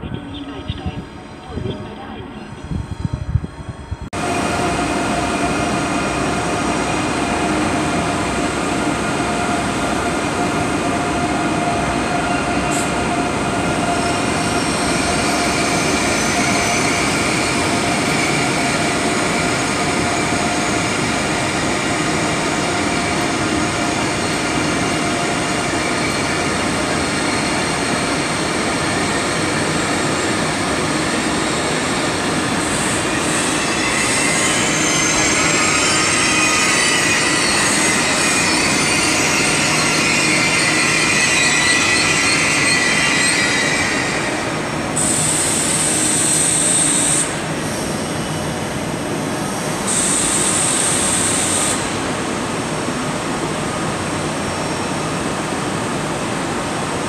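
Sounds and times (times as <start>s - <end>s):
train rumble: 0.0s - 39.9s
high wheel squeal: 32.7s - 47.2s.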